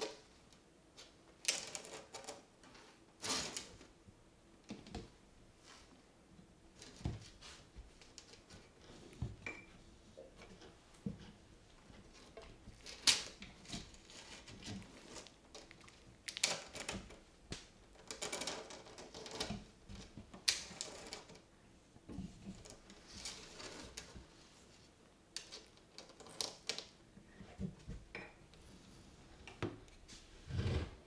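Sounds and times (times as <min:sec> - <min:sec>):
claws clicking and scraping on tub: 0:12.1 - 0:21.4.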